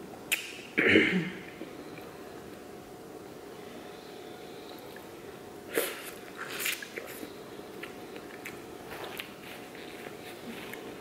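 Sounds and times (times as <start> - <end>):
faint steady hum: 0.0 - 11.0
person eating corn on the cob: 5.7 - 11.0.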